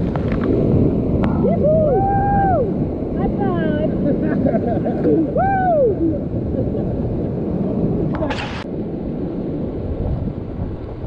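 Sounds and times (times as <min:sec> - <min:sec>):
whitewater rapids churning: 0:01.3 - 0:08.7.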